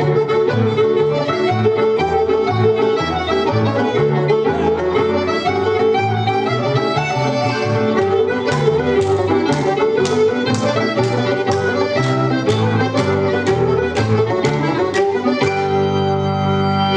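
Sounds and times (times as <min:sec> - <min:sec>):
folk jig music: 0:00.0 - 0:16.9.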